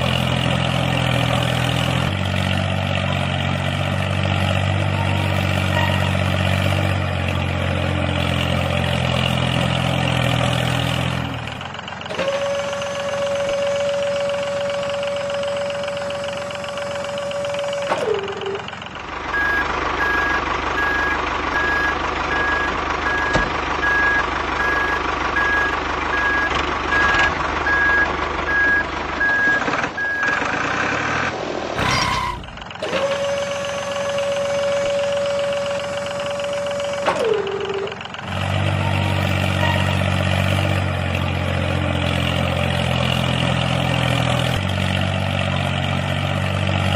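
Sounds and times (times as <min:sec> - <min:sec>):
miniature tractor whine: 0:12.0 - 0:23.4, 0:31.8 - 0:46.9
reversing beeps: 0:19.3 - 0:30.4.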